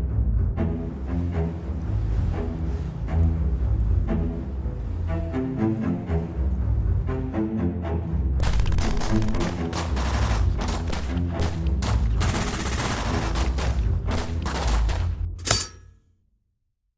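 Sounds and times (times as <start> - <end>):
background music: 0.0 - 16.0
gunfire bursts: 8.4 - 15.1.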